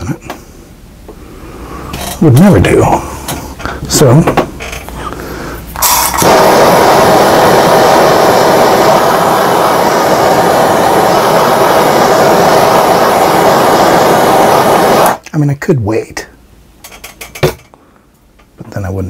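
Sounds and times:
gas torch flame hissing: 5.3 - 15.2.

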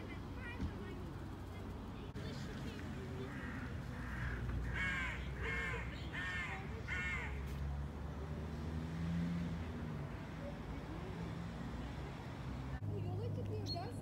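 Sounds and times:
crow cawing: 3.2 - 7.5.

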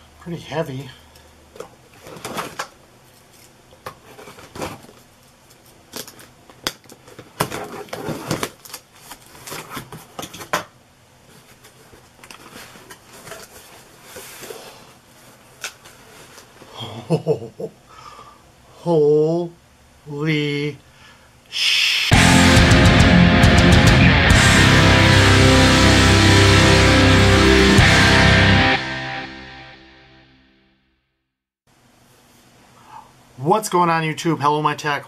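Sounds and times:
cardboard scraping and crinkling: 2.0 - 2.7, 4.0 - 5.1, 7.0 - 10.4, 11.3 - 16.6.

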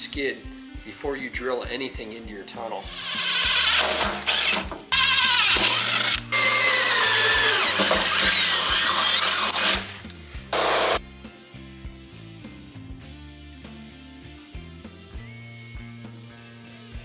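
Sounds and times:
cordless drill boring through metal: 2.8 - 11.0.

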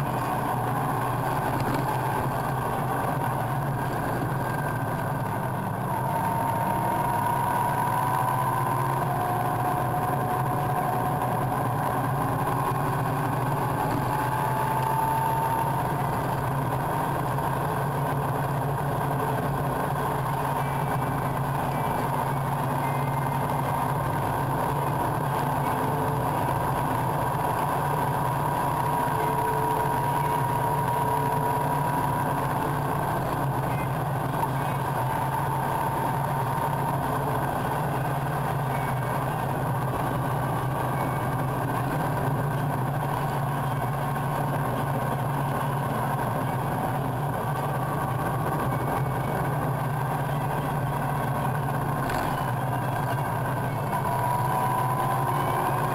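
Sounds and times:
road noise: 0.0 - 55.9
vehicle engine: 0.0 - 55.9.

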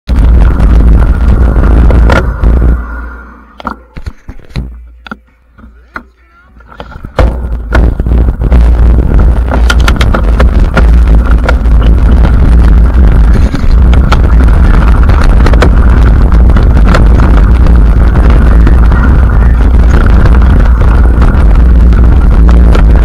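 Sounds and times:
wind rumble on microphone: 0.0 - 3.6, 6.7 - 23.0
bike rattling and knocking: 6.8 - 18.7.

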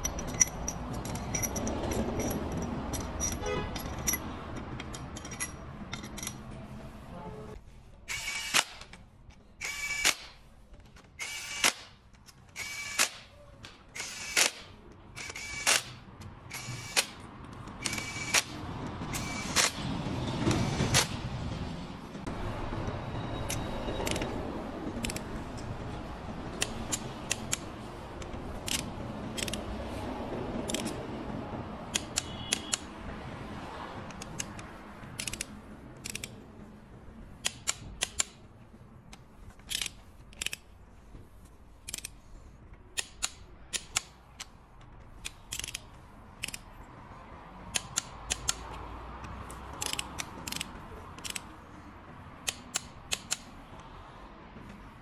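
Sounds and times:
ratchet wrench clicking: 0.0 - 6.5, 8.1 - 9.0, 9.6 - 10.4, 11.2 - 13.3, 13.9 - 19.8, 23.5 - 24.3, 25.0 - 25.7, 26.5 - 29.8, 30.6 - 31.0, 31.9 - 32.9, 34.1 - 36.4, 37.4 - 38.5, 39.1 - 40.7, 41.8 - 42.2, 42.9 - 46.8, 47.7 - 51.6, 52.4 - 53.9.

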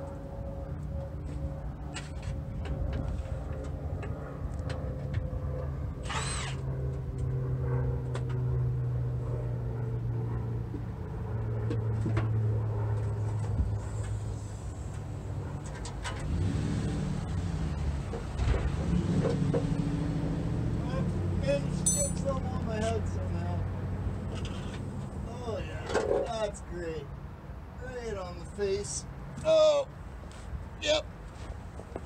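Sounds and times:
low mechanical hum: 0.0 - 18.7.

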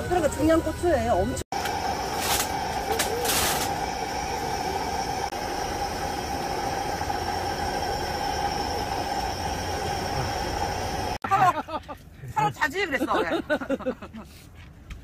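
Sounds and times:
cooker whine: 0.0 - 11.2
stew boiling hiss: 1.6 - 11.2.

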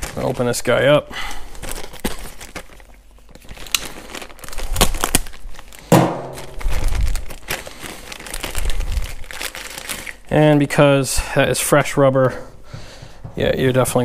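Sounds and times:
plastic packaging crinkling: 0.0 - 11.1
dull handling thumps: 12.2 - 14.0.

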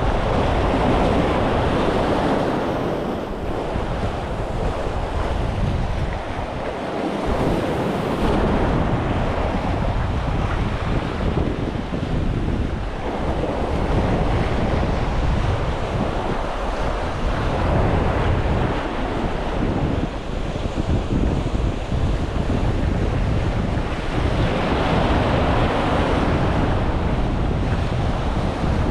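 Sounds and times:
wind buffeting microphone: 0.0 - 28.9.

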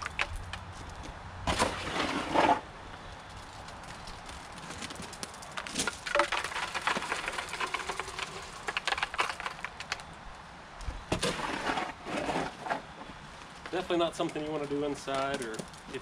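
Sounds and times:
shovel scraping plastic tub: 1.5 - 2.7, 11.1 - 12.9.

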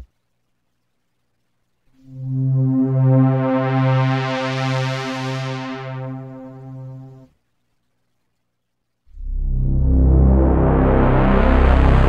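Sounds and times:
sustained low synth note: 9.2 - 12.0.

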